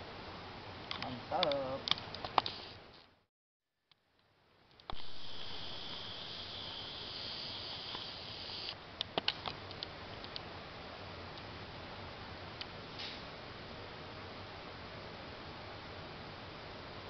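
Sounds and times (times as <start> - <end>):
background hiss: 0.0 - 3.1, 4.2 - 17.0
high-pitched buzz: 4.9 - 8.8.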